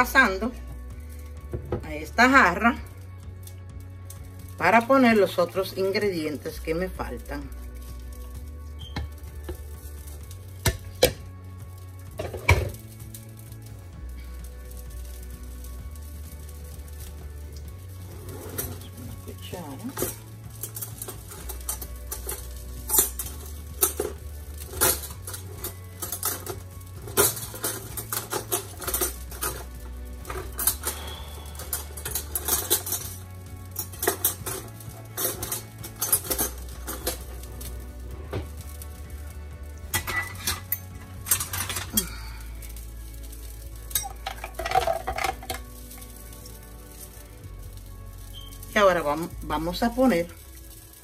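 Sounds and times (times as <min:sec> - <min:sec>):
dishes and utensils clinking: 0:12.2 - 0:12.8, 0:19.9 - 0:37.4, 0:39.9 - 0:42.2, 0:43.9 - 0:45.7.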